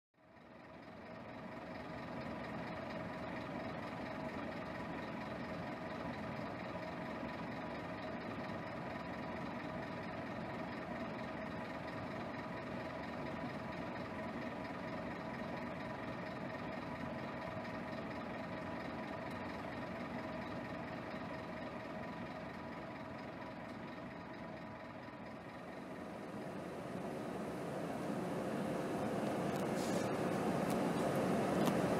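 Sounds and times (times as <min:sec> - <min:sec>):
bus diesel engine idling: 0:00.2 - 0:31.9.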